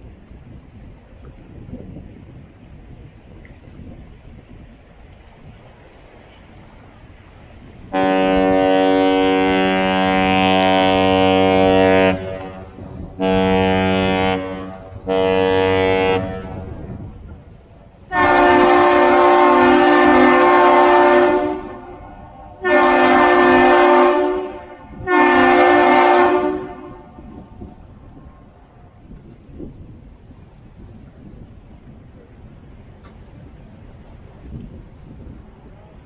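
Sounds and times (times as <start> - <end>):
deep ship horn blasts: 7.6 - 29.4.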